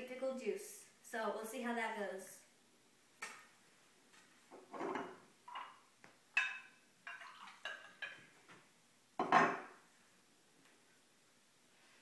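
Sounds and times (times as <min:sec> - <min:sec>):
glasses clinking: 0:04.9 - 0:05.8, 0:06.4 - 0:08.2, 0:09.2 - 0:09.7.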